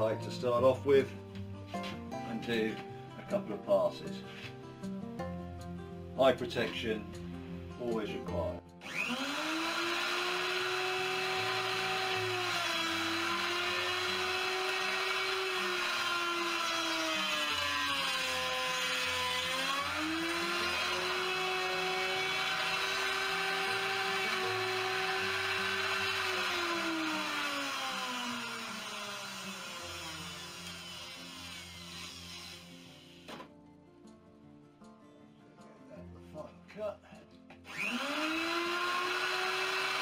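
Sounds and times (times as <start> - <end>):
electric router motor whine: 8.8 - 33.5, 37.7 - 40.0.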